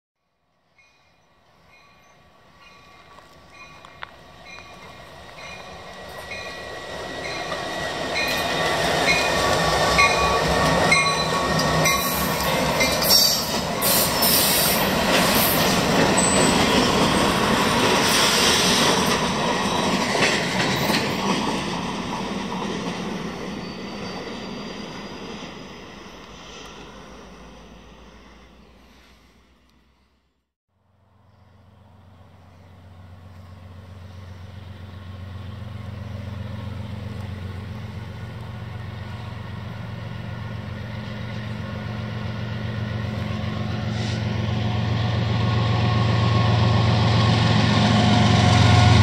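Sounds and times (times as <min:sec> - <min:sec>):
train bell ringing: 0:00.8 - 0:14.2, 0:16.1 - 0:17.3
train rumble: 0:01.6 - 0:29.6, 0:31.0 - 0:49.0.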